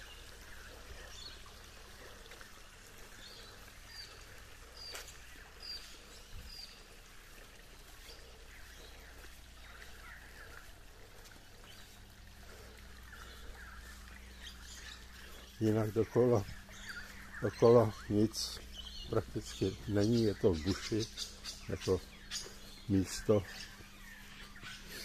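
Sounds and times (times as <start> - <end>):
low steady background hiss: 0.0 - 25.0
bird chirps: 12.7 - 25.0.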